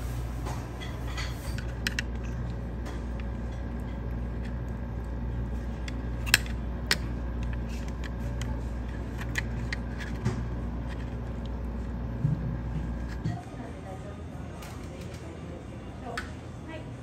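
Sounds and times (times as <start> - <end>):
kitchen equipment humming: 0.0 - 17.0
utensils clicking and clinking: 0.8 - 4.7, 5.7 - 11.9.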